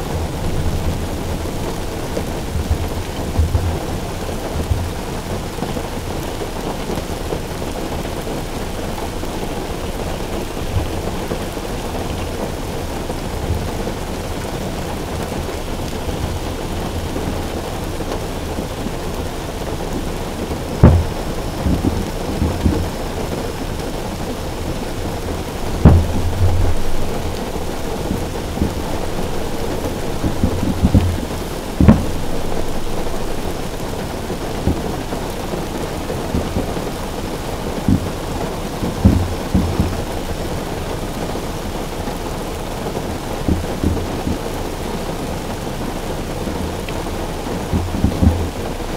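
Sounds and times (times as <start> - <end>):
rain on a car roof: 0.0 - 48.9
rolling rumble: 0.0 - 48.9
small thuds: 20.8 - 23.1, 25.2 - 35.0, 39.0 - 40.2.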